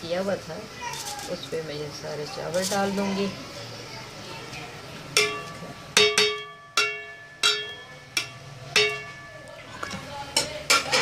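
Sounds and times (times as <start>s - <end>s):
metal strainer knocking on pot: 5.2s - 9.4s.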